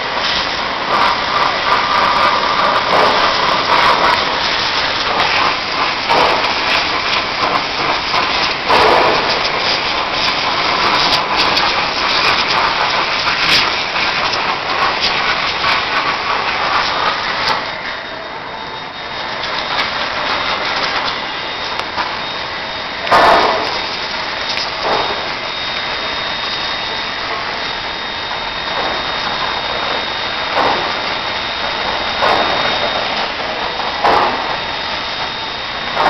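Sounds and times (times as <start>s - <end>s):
pressure washer jet hissing on metal: 0.0s - 36.0s.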